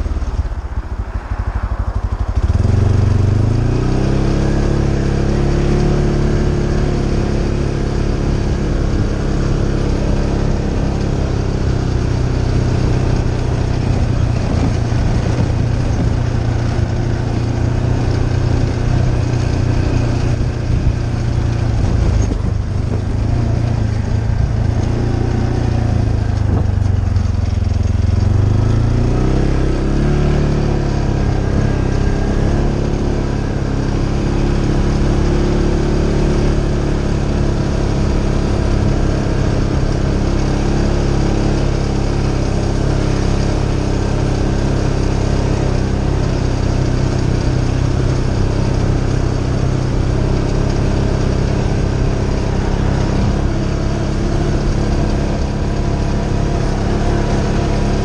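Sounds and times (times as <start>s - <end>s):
quad engine running: 0.0s - 58.0s.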